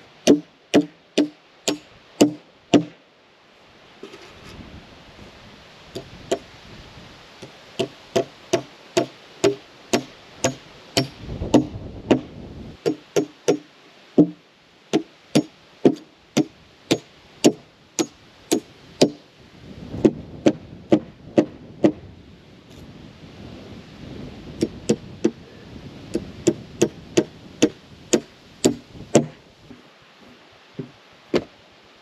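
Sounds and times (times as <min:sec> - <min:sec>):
hammer driving nails into wood: 0:00.3 - 0:03.0, 0:12.8 - 0:14.4, 0:15.0 - 0:19.2, 0:26.4 - 0:29.4.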